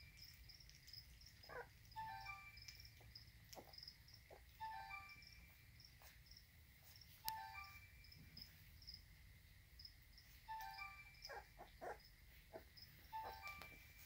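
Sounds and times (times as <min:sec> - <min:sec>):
crickets chirping faintly: 0:00.0 - 0:14.0.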